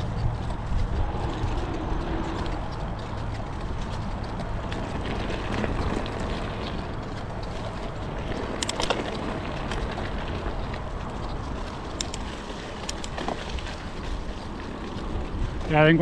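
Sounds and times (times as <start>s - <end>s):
bike clicks and rattles: 0.0s - 16.0s
bike tyres rolling: 0.0s - 16.0s.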